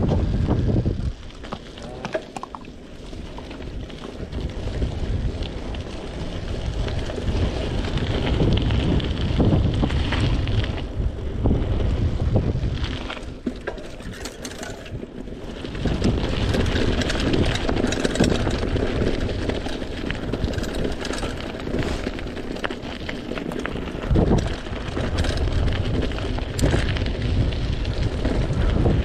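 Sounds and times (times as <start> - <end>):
bike rattling: 0.0 - 29.0
wind buffeting microphone: 0.0 - 29.0.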